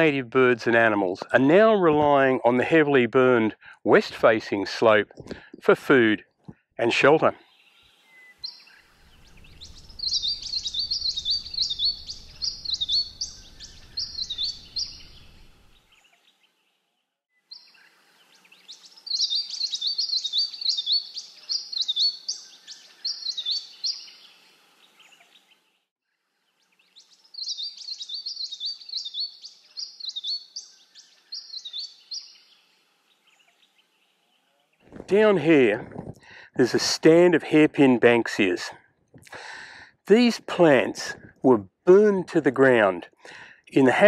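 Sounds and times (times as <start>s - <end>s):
songbird singing: 6.6s - 36.7s.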